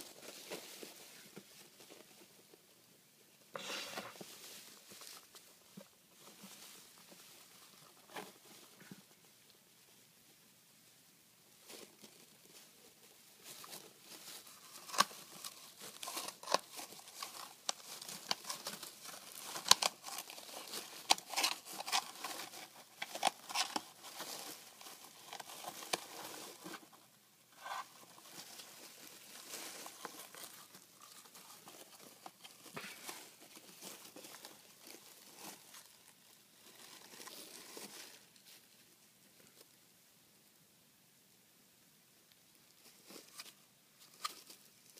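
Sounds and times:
wood shavings rustling and crackling: 0:11.6 - 0:38.8.

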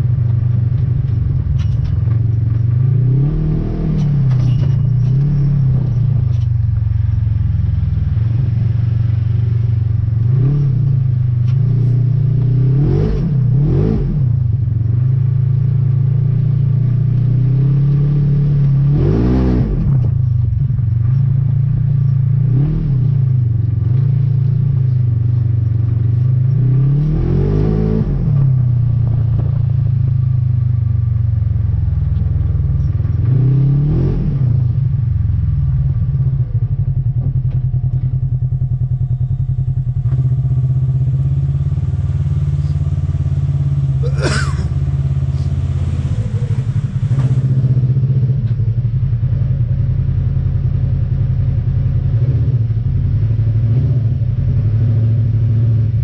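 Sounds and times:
vehicle engine revving: 0:00.0 - 0:56.0.

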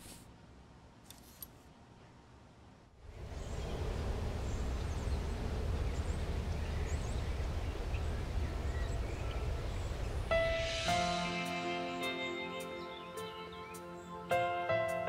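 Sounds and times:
wind rumble: 0:03.0 - 0:11.4
music: 0:10.3 - 0:15.0.

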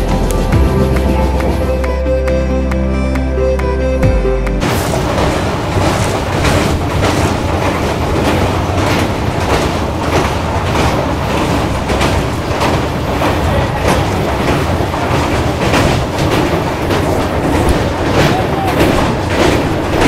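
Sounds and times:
train wheels rumbling on rails: 0:00.0 - 0:02.2, 0:04.6 - 0:20.0
wheel clacks: 0:04.6 - 0:20.0.

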